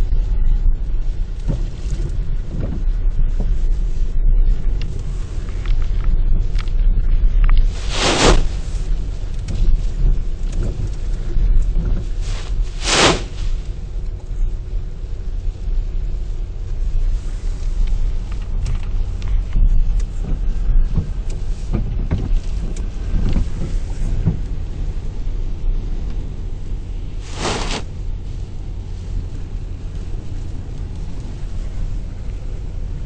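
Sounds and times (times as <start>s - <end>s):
storm wind on microphone: 0.0s - 33.0s
breaking waves: 7.8s - 8.7s, 12.5s - 13.6s.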